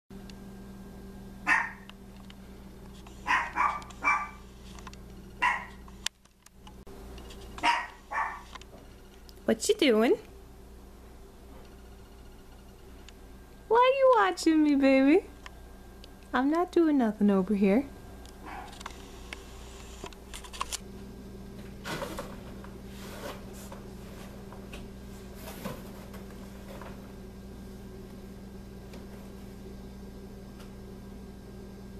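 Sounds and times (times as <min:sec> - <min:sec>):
steady low hum: 0:00.1 - 0:31.9
small dog yapping: 0:01.5 - 0:01.9, 0:03.2 - 0:04.4, 0:05.4 - 0:05.8, 0:07.6 - 0:08.5, 0:18.4 - 0:18.8.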